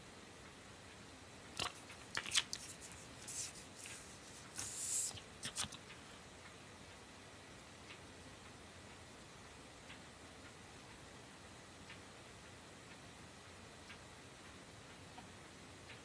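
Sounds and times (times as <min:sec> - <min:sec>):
cards clicking and tapping: 0:01.6 - 0:03.6
cards sliding rustle: 0:01.6 - 0:05.8.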